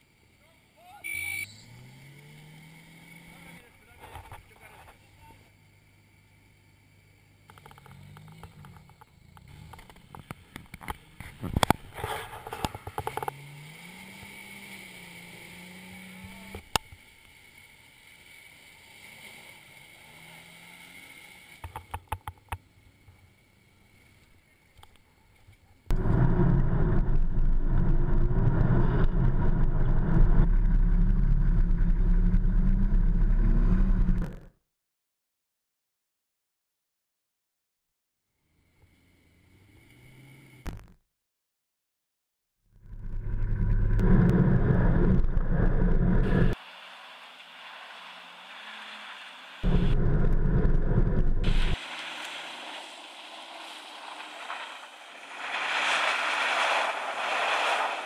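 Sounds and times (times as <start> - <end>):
off-road vehicle engines in mud: 0.0 - 34.5, 38.6 - 41.0, 42.8 - 58.0
loud steady engine noise close by: 42.9 - 55.5.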